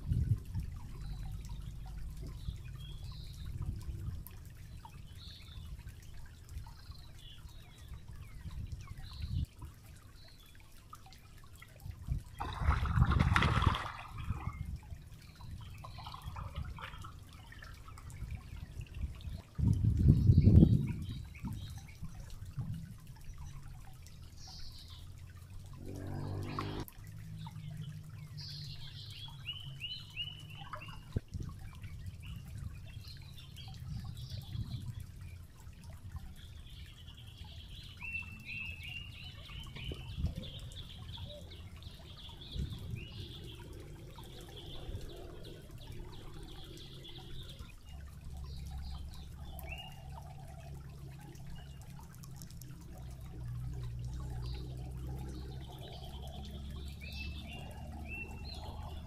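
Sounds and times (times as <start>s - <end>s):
stream trickling over rocks: 0.0s - 59.0s
birds chirping: 23.2s - 35.6s, 36.2s - 52.1s.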